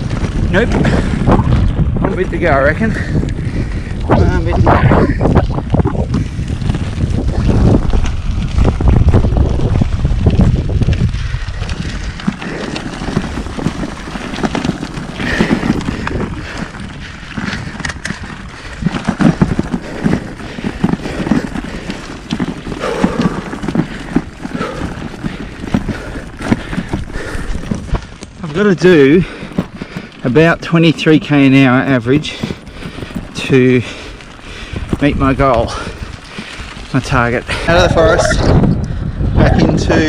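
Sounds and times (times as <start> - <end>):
bicycle tyres rolling on gravel: 0.0 - 40.0
wind buffeting microphone: 0.0 - 40.0.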